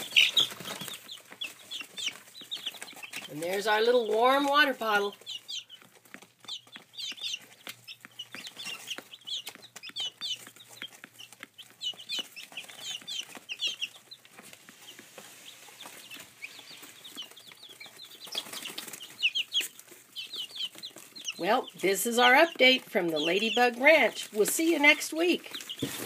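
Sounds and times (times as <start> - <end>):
chicks peeping: 0.0 - 26.0.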